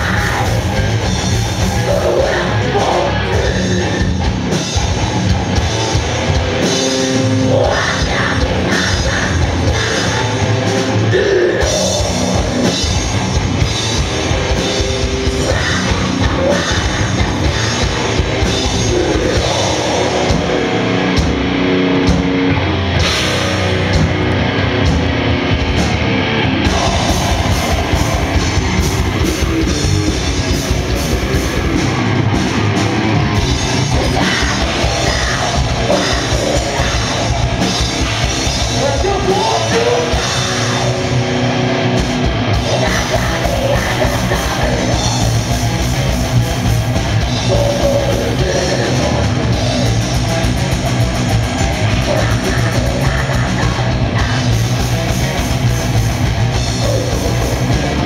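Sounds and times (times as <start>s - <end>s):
heavy rock band playing: 0.0s - 58.0s
person singing into microphone: 1.8s - 4.1s, 7.4s - 10.4s, 38.8s - 41.0s, 42.6s - 45.1s, 52.0s - 54.6s.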